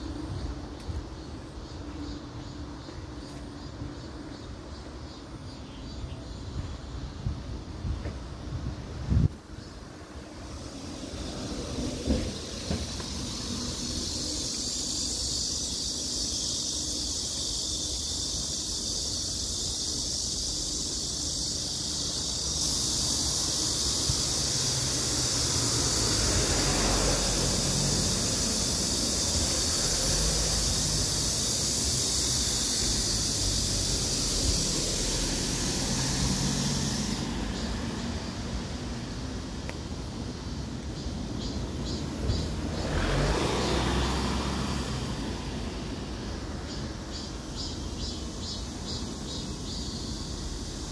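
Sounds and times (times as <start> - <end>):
cicadas buzzing: 0.0 - 50.9
wind rumble on microphone: 6.4 - 9.8.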